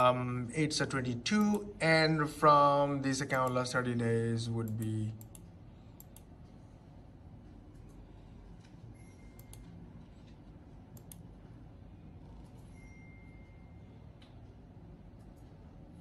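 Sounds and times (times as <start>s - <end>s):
low room hum: 0.0s - 16.0s
computer mouse clicks: 4.7s - 6.3s, 9.4s - 11.4s.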